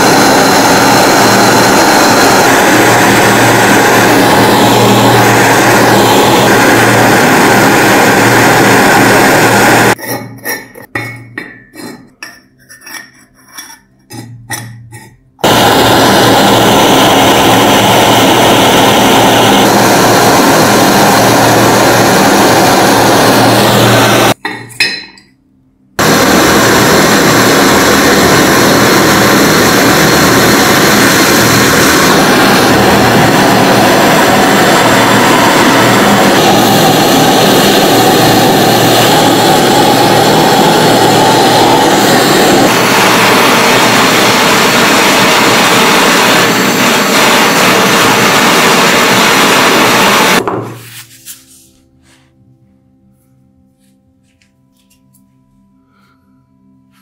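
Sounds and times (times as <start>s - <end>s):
blowtorch hissing: 0.0s - 10.0s, 15.4s - 24.4s, 26.0s - 50.5s.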